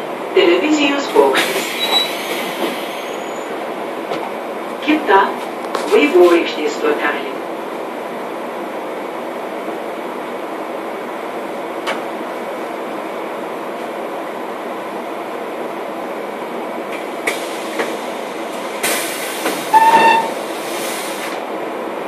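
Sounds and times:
trolleybus cabin rumble: 0.0 - 22.0
loud hiss with squeal: 1.4 - 3.5.

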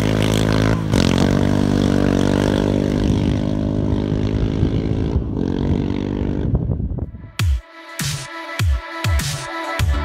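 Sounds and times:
quad engine running hard: 0.0 - 7.0.

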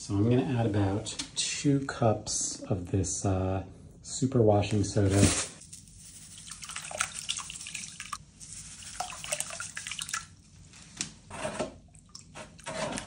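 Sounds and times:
powder poured into water: 6.3 - 10.4
small splashes and drips: 6.4 - 10.4.

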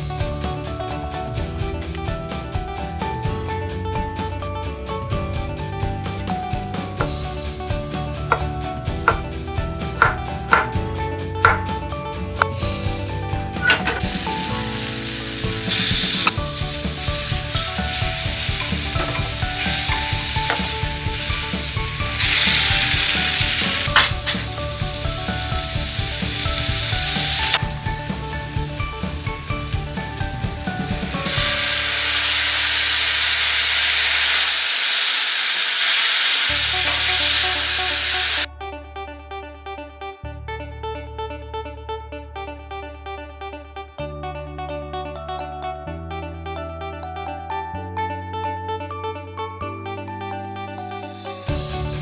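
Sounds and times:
knife chopping on wooden board: 10.0 - 10.8, 11.5 - 11.7
food sizzling in a pan: 14.0 - 38.5.

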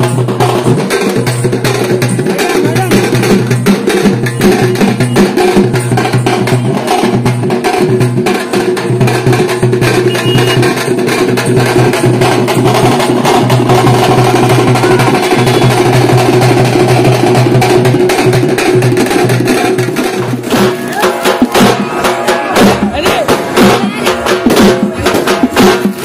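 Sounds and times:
frame drums beaten with sticks: 0.0 - 26.0.

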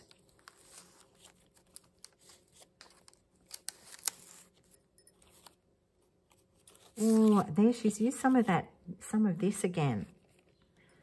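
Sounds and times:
paper and card rustling: 0.0 - 5.6, 6.2 - 8.6
paper crinkling: 0.0 - 5.6, 6.2 - 8.4.

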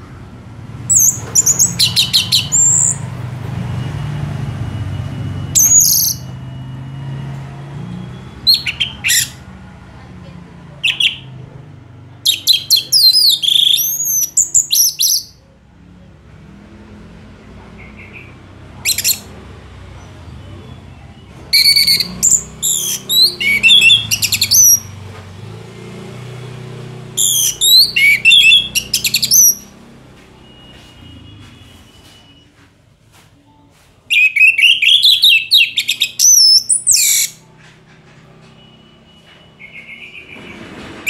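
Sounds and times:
thrush singing: 16.6 - 31.4.

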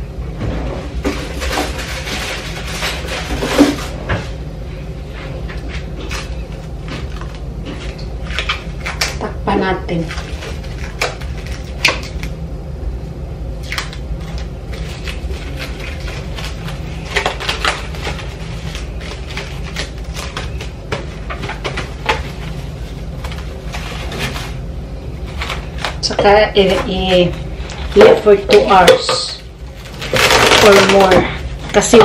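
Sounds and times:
steady low hum: 0.0 - 32.0
kitchen items clicking and rustling: 25.3 - 32.0.

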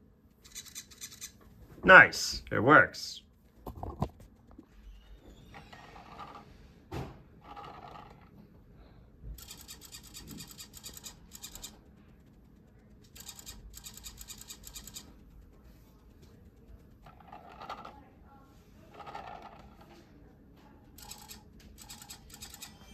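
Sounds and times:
fast even ticking: 9.4 - 17.0.

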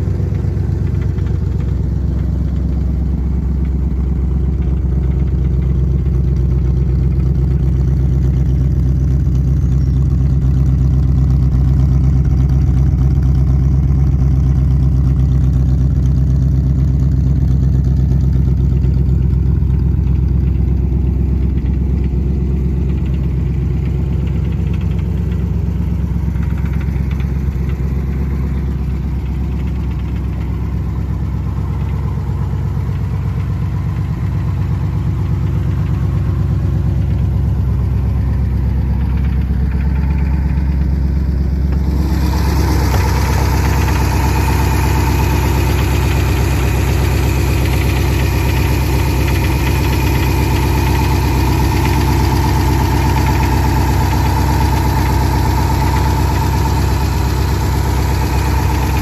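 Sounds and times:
car engine idling: 0.0 - 59.0
steady whine: 19.7 - 59.0.

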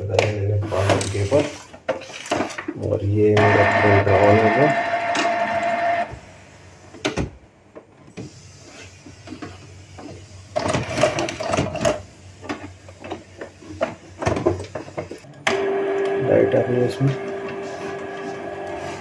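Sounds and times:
printer motor whirs and clicks: 3.4 - 6.2, 9.3 - 19.0.

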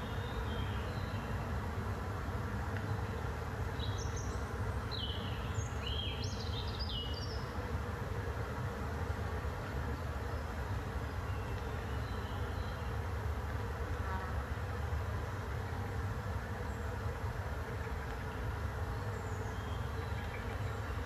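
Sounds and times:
songbird singing: 0.0 - 1.6, 2.7 - 7.6, 9.6 - 13.3, 15.0 - 21.0
wind in pine forest: 0.0 - 21.0.

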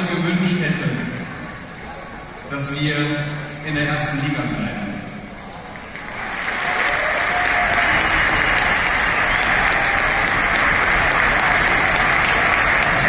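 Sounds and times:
arena crowd applauding: 5.7 - 13.0.

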